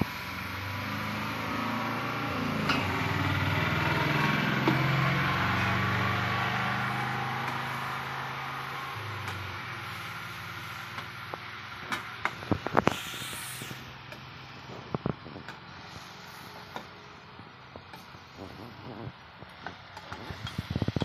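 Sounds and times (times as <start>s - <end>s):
short hiss: 12.5s - 14.0s.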